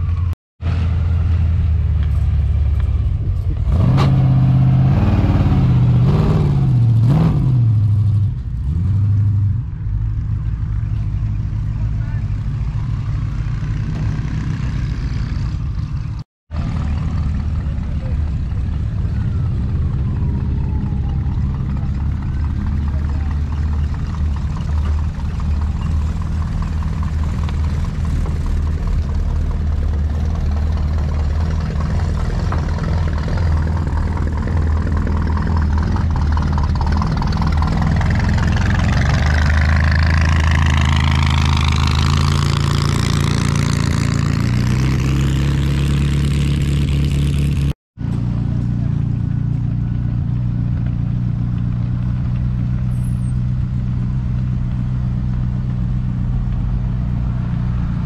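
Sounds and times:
engine revving: 0.0 - 9.7, 11.7 - 48.8
car engines driving past: 0.0 - 58.0.

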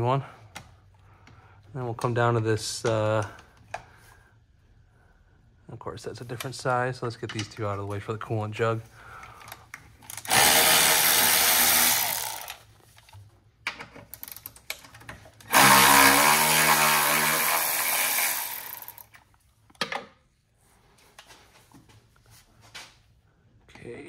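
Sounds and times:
cordless ratchet running: 10.1 - 12.6, 15.5 - 19.1.

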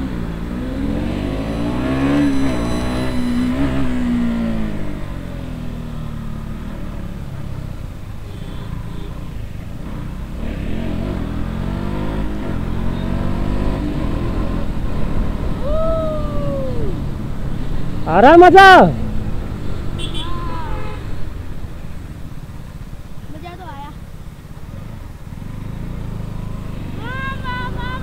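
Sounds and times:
motorcycle engine revving: 0.0 - 7.8, 9.7 - 15.7.

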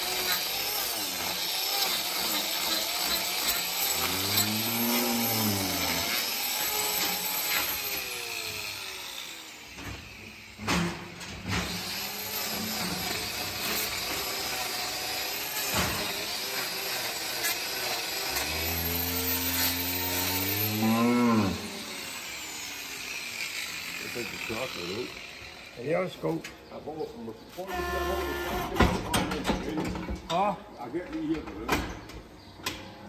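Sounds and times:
cow mooing: 4.0 - 6.1, 20.4 - 21.7.

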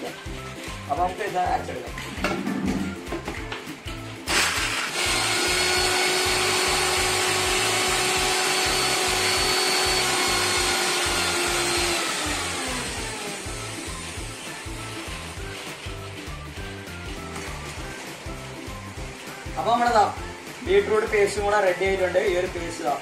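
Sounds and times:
background music with beat: 0.0 - 23.0
mixer grinder whining: 4.3 - 19.3.

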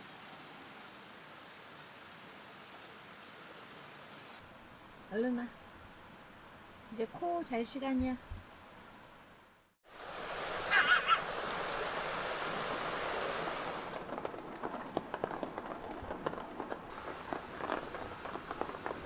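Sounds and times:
rain and rushing creek: 0.0 - 8.0, 8.6 - 19.0
rain drips and taps: 9.9 - 19.0.

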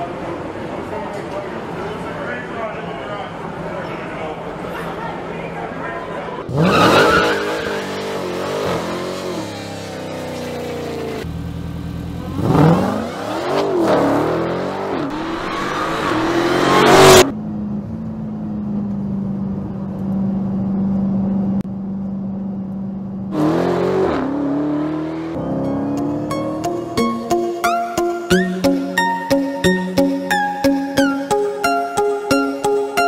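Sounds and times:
car engine revving hard: 6.5 - 11.2, 12.2 - 17.3, 23.3 - 26.6.

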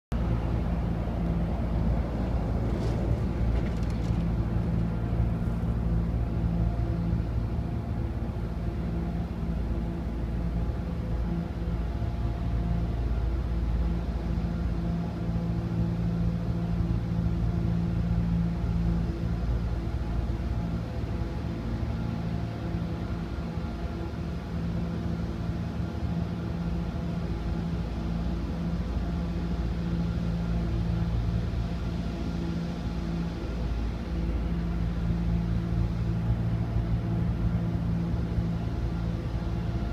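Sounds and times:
low rumble: 0.1 - 9.2
idling motor hum: 0.2 - 24.1.

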